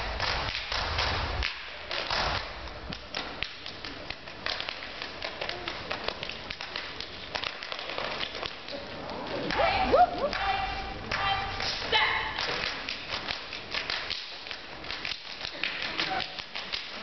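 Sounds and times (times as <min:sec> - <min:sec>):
claps stomps and slaps: 0:00.0 - 0:03.8.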